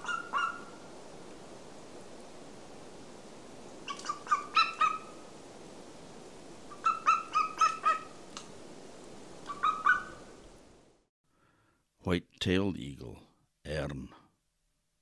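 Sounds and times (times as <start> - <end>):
eagle calling: 0.0 - 0.7, 3.9 - 5.2, 6.7 - 8.2, 9.4 - 10.3
recording hiss: 0.0 - 15.0.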